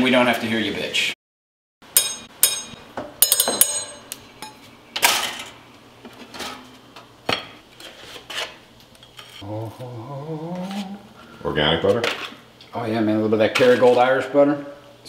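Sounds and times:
sharp knocks with metallic ring: 1.9s - 4.6s.

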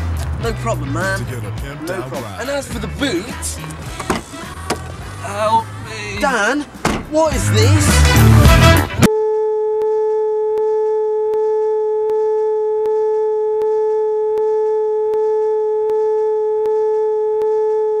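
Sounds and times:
electronic test tone: 9.1s - 18.0s.

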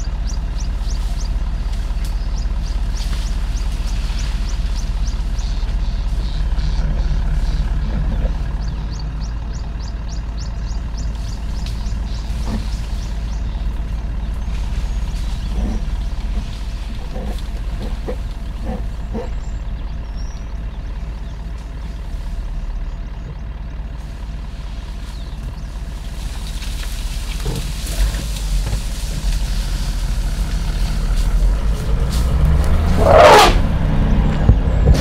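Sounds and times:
elephant call: 0.0s - 20.8s, 29.1s - 33.9s
vehicle engine rumbling: 0.0s - 35.0s.

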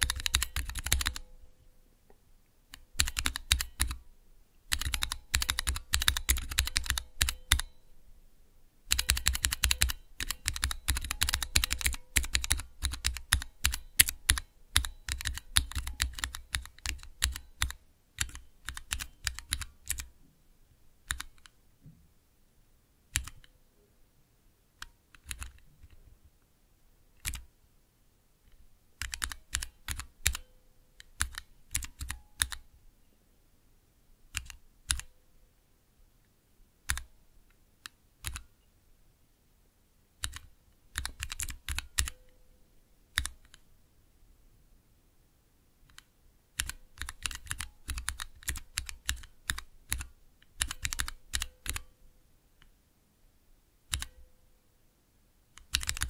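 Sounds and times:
mechanical keyboard typing: 0.0s - 1.3s, 2.7s - 4.0s, 4.7s - 7.8s, 8.9s - 20.1s, 21.0s - 21.5s, 23.1s - 23.5s, 25.2s - 26.0s, 27.2s - 27.5s, 29.0s - 32.6s, 34.3s - 35.1s, 36.9s - 37.1s, 38.2s - 38.4s, 40.2s - 42.2s, 43.1s - 43.6s, 45.9s - 51.9s, 53.9s - 54.2s, 55.6s - 56.0s.

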